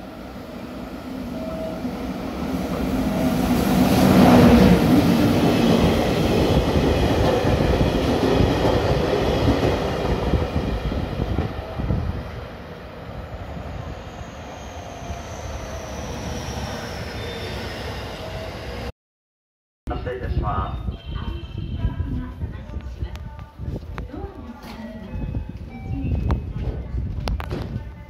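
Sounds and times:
electric locomotive hum: 0.0 - 18.9.

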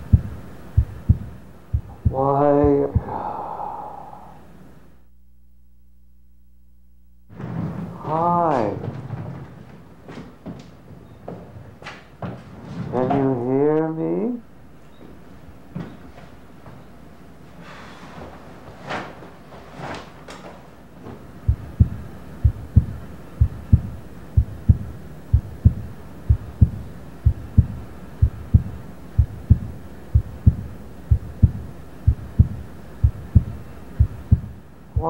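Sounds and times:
heartbeat thumps: 0.0 - 3.4, 21.5 - 35.0.

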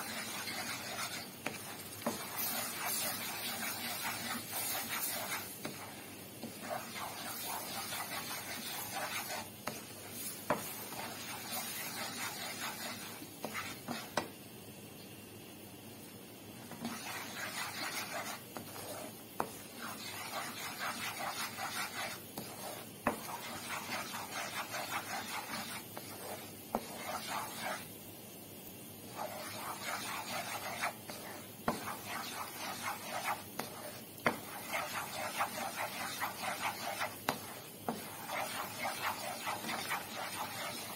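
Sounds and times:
roux sizzling in frying pan: 0.0 - 14.1
wooden spoon stirring and scraping: 0.0 - 14.2, 16.6 - 28.0, 29.1 - 40.9.

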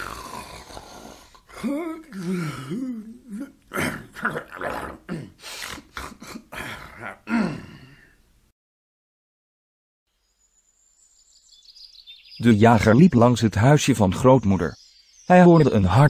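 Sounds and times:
cartoon wolf snoring: 0.0 - 8.0.

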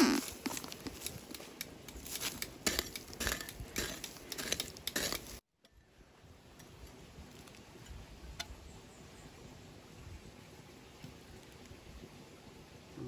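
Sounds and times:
metal tool digging stony soil: 0.0 - 5.4.

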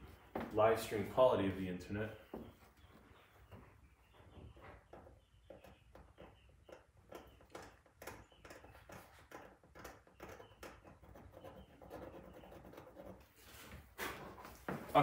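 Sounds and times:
tool scratching paint on canvas: 4.5 - 14.4.

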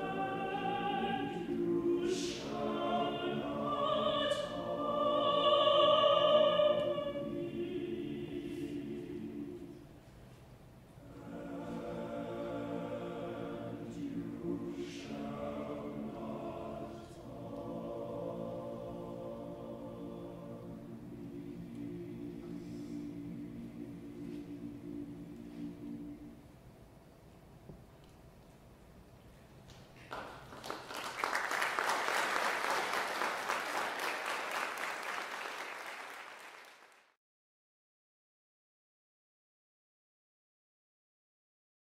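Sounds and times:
men's chorus singing a cappella: 0.0 - 9.8, 11.1 - 26.3
audience applauding: 30.0 - 37.2.

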